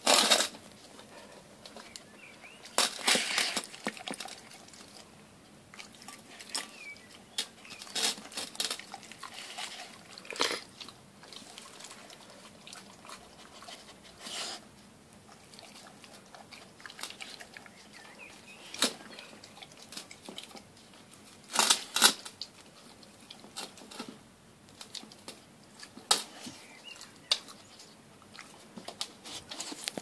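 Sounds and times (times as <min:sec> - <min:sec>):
dog licking and chewing: 0:05.7 - 0:14.2, 0:15.2 - 0:21.6.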